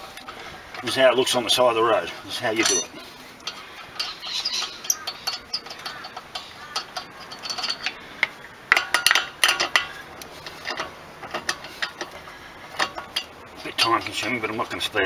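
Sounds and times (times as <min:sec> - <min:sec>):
metallic clicks of wheel nuts: 0:02.4 - 0:14.3.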